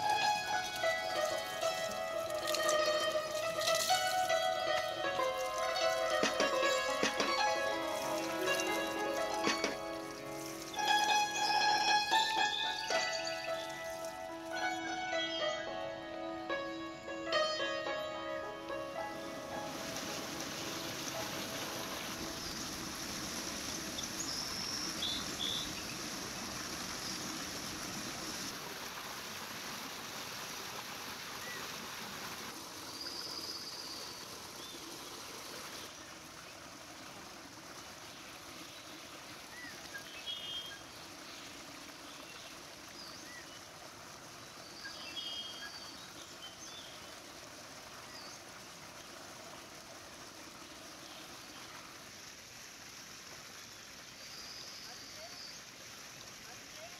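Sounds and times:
water pouring from a spout: 0.0s - 14.9s, 19.2s - 56.9s
stream running water: 0.0s - 56.9s
bird chirps: 24.0s - 26.0s.

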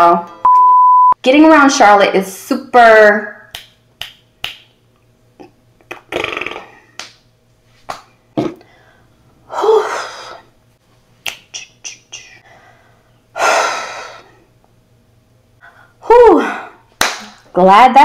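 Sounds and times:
finger snaps: 3.5s - 4.8s, 7.0s - 7.2s, 11.2s - 12.1s.

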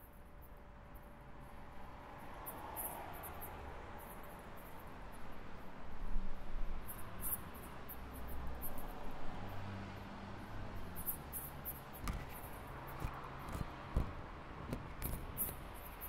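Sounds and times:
crickets chirping: 6.4s - 13.4s
sharp knocks: 12.0s - 15.5s.

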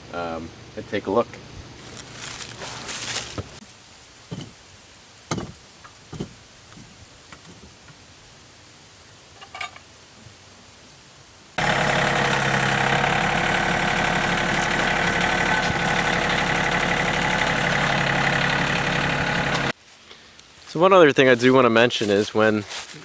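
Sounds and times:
engine idling: 11.6s - 19.8s.

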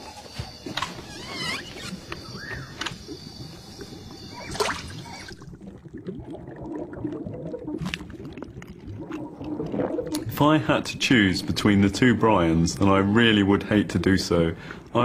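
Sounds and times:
short gliding squeaks: 0.0s - 5.3s
underwater bubbling and sloshing: 0.0s - 15.0s
sharp water splash: 4.4s - 5.4s.

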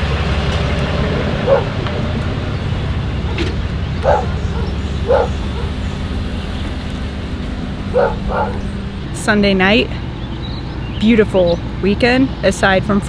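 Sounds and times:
pickup truck engine humming: 0.0s - 12.8s
dog barking: 1.2s - 1.8s, 4.0s - 6.0s, 7.9s - 8.7s.

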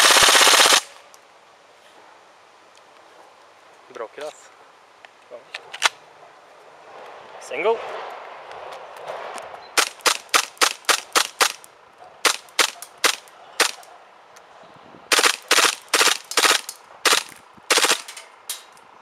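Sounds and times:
airsoft gun shots: 0.0s - 0.9s, 9.8s - 11.6s, 12.2s - 13.8s, 15.1s - 18.2s
blowback bolt clack: 15.9s - 18.8s.

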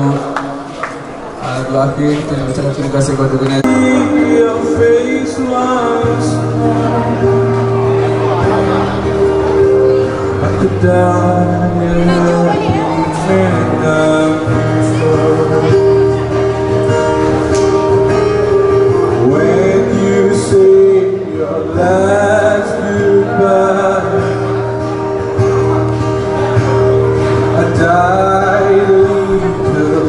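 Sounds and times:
acoustic guitar: 0.0s - 30.0s
keyboard sustained chords: 3.0s - 30.0s
man singing: 3.4s - 9.3s, 10.0s - 25.8s, 26.4s - 30.0s.

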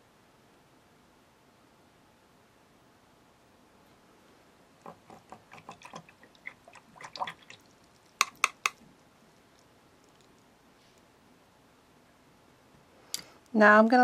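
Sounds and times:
small hard objects clicking: 7.8s - 8.8s
sharp clicks: 8.1s - 8.8s.

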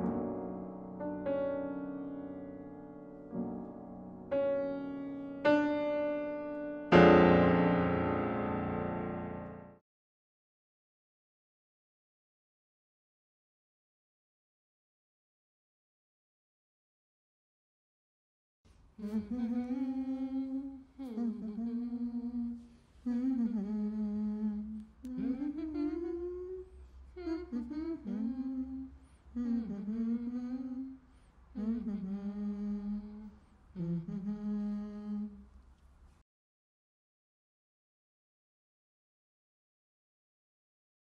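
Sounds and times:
person humming a melody: 19.0s - 31.0s, 31.6s - 35.4s.

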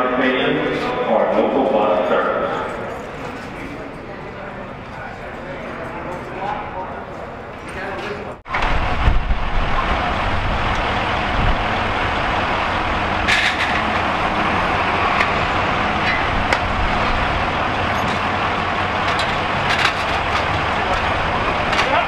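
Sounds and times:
fire engine pump running: 8.3s - 22.0s.

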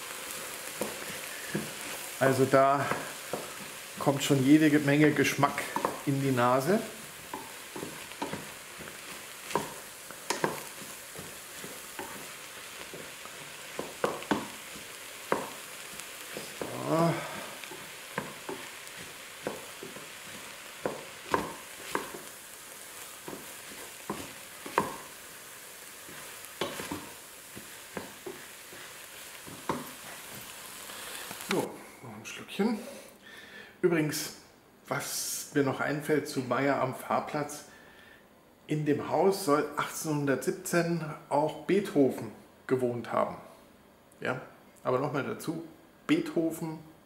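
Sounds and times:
onions sizzling in a pot: 0.0s - 31.8s
wooden spoon scraping a pot: 0.1s - 31.6s.

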